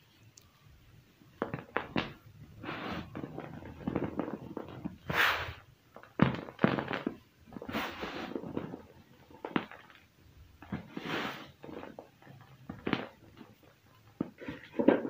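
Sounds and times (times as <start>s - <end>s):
powder hissing through fingers: 1.4s - 14.5s.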